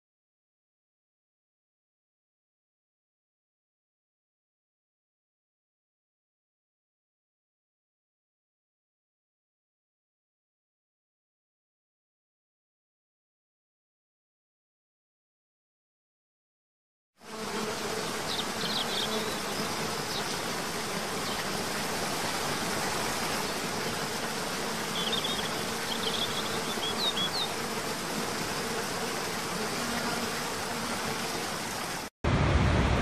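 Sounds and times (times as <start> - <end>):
low insect buzz: 17.2 - 32.1.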